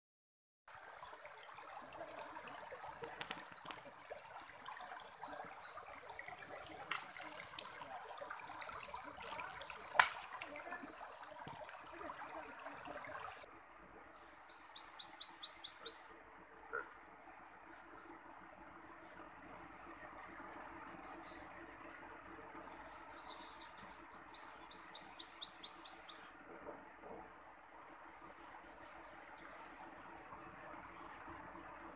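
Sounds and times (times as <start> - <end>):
river water flowing: 0.7 - 31.9
bird rising chirps: 14.2 - 16.0, 24.4 - 26.2.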